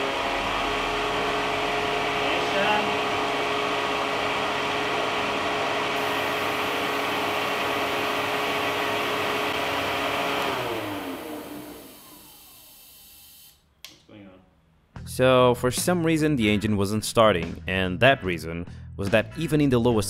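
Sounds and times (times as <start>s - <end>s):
leaf blower running: 0.0s - 13.6s.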